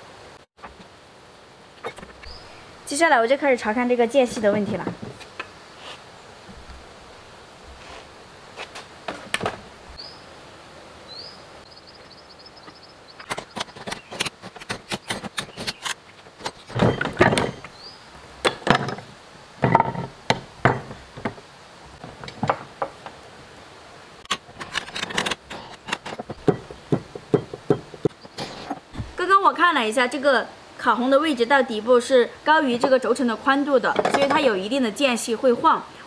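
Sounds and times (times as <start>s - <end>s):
metal tools and parts clanking: 13.2s - 17.7s, 24.3s - 26.7s.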